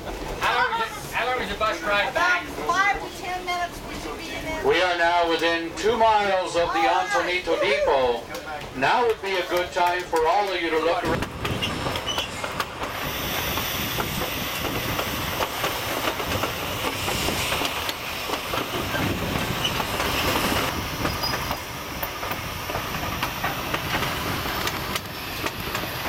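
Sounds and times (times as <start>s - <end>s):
train wheel and track noise: 0.0s - 26.0s
clicking from rails: 8.3s - 26.0s.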